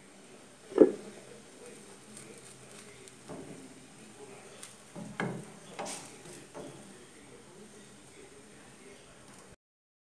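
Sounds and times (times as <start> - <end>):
faint sizzle: 0.0 - 9.6
wooden spatula scraping a frying pan: 2.6 - 3.8, 4.8 - 6.9.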